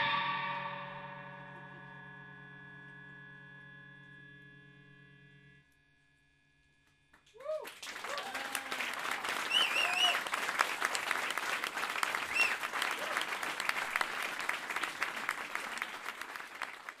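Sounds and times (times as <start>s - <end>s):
audience applauding: 7.2s - 17.0s
people cheering: 7.3s - 17.0s.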